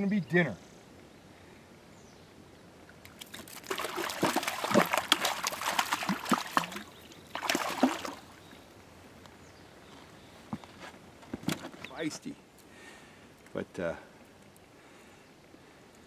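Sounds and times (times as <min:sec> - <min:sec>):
fish thrashing water splashing: 0:03.1 - 0:08.4.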